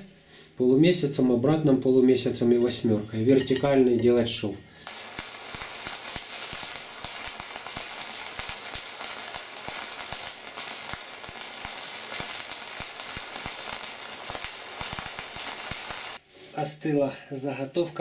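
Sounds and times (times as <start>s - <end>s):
welding arc crackling and popping: 4.8s - 16.2s.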